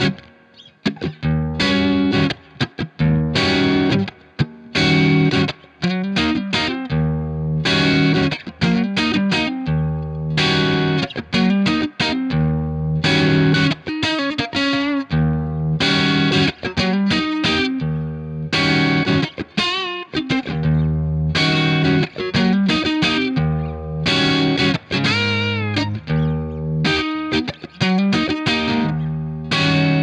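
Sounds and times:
overdriven electric guitar: 0.0 - 30.0.

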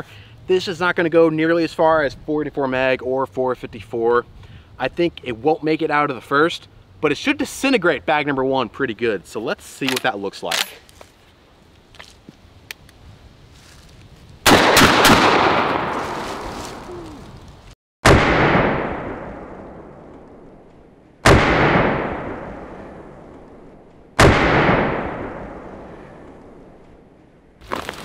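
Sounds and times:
shotgun blasts with echo: 14.4 - 16.8, 18.0 - 20.5, 21.2 - 23.5, 24.2 - 26.6.

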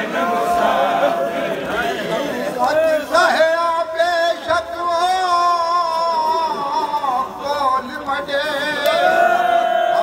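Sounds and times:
person chanting a lament: 2.2 - 10.0.

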